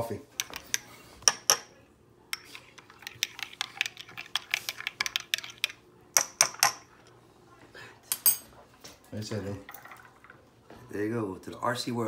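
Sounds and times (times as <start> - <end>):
cups spoons and dishes clinking: 2.3 - 7.1.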